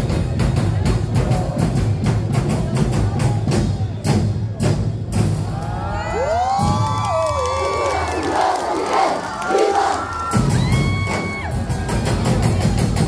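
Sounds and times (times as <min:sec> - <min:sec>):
drum and percussion ensemble: 0:00.0 - 0:13.0
performers shouting: 0:05.4 - 0:12.0.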